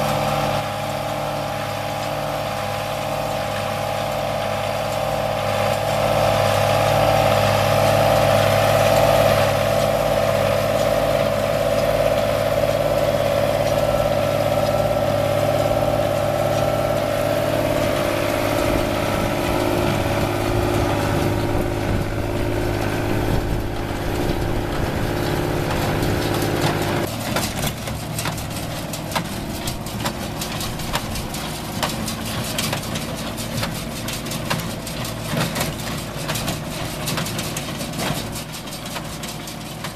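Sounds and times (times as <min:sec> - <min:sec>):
tractor diesel engine running: 0:00.0 - 0:39.9
baler rattling and clattering: 0:09.0 - 0:39.9.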